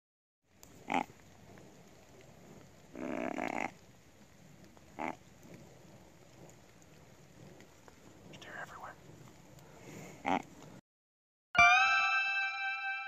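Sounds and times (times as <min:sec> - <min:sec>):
deer grunt call: 0:02.9 - 0:03.8, 0:10.2 - 0:10.5.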